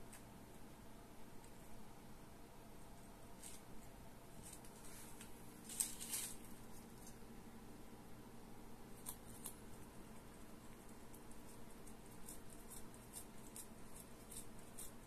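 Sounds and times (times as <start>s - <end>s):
cat crunching crisps: 4.4s - 7.2s, 8.9s - 15.0s.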